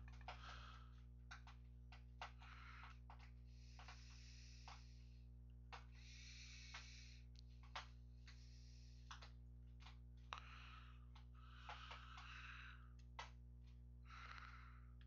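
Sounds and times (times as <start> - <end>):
keyboard and mouse clicks: 0.0 - 5.0, 6.6 - 8.4, 9.1 - 10.5, 11.1 - 13.4
low electrical hum: 0.0 - 15.0
soft breaths: 0.1 - 15.0.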